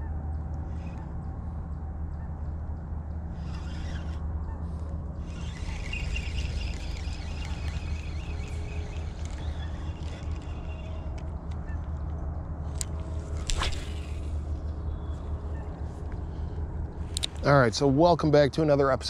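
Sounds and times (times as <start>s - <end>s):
faint bird calls: 3.3s - 12.1s
sharp clicks: 5.3s - 14.2s.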